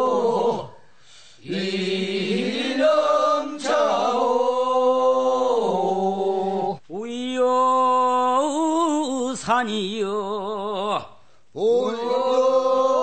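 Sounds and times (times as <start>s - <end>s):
man singing unaccompanied: 4.8s - 13.0s.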